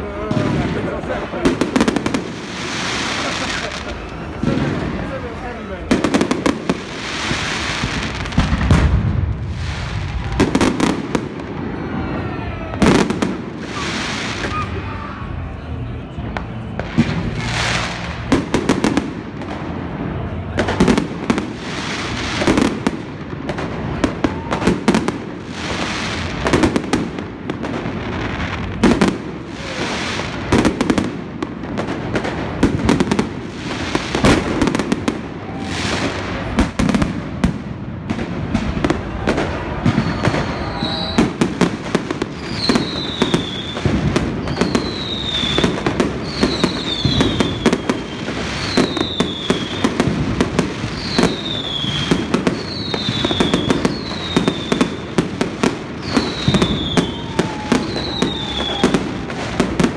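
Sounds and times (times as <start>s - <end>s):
fireworks bangs and crackling: 0.0s - 59.9s
falling firework whistle: 6.1s - 22.9s, 28.4s - 31.2s, 38.6s - 59.9s.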